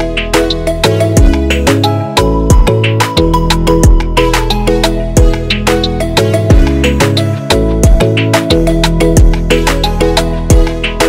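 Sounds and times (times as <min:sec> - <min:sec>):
background music with beat: 0:00.0 - 0:11.0
deep kick drum: 0:01.2 - 0:01.5, 0:02.5 - 0:02.8, 0:03.8 - 0:04.2, 0:05.2 - 0:05.4, 0:06.5 - 0:06.8, 0:07.8 - 0:08.2, 0:09.2 - 0:09.5, 0:10.5 - 0:10.7.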